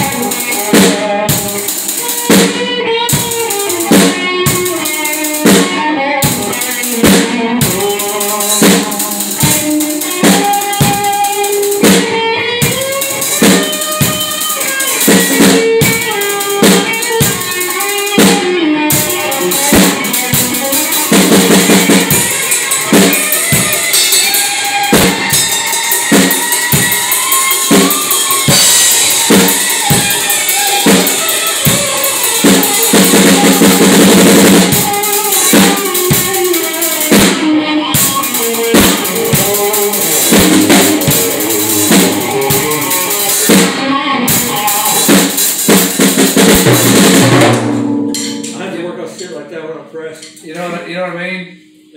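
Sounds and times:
rapid drum rolls: 0.0s - 37.4s, 38.0s - 49.2s
ringing cymbals: 18.9s - 33.9s, 47.2s - 51.9s.

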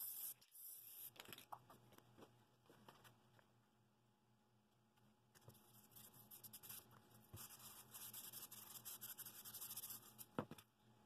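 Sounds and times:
hand rubbing paper: 5.5s - 10.3s.

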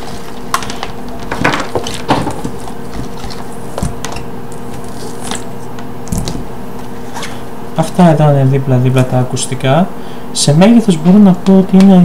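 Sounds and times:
steady background hiss: 3.5s - 12.0s.

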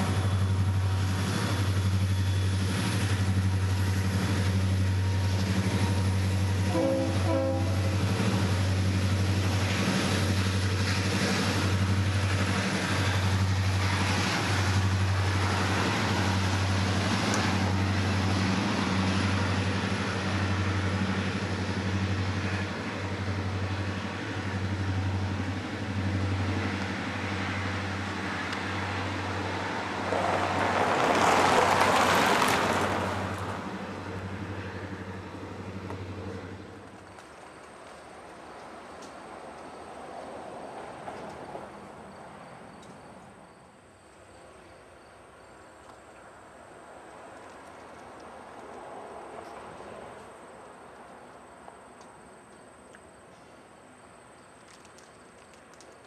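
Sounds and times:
road vehicle passing: 0.0s - 37.2s
diesel locomotives droning: 0.0s - 56.0s
train chime horn: 5.9s - 8.0s.

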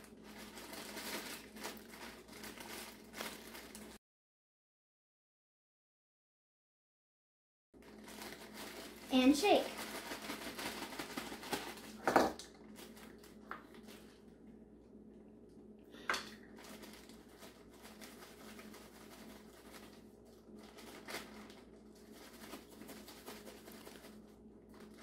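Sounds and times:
plastic bag rustling: 0.0s - 4.0s, 7.8s - 14.2s, 16.4s - 25.0s.

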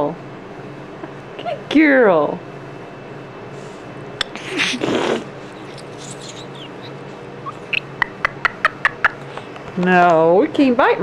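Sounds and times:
cockatoo harsh rasp: 4.4s - 7.7s.

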